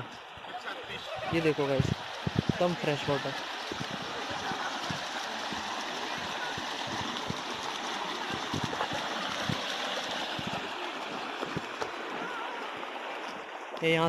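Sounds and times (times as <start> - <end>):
river water rushing over stones: 0.0 - 14.0.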